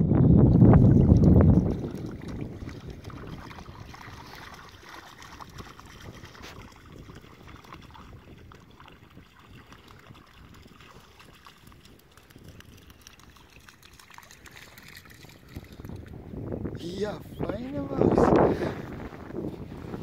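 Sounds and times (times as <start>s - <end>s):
dog splashing through shallow water: 0.8s - 16.1s.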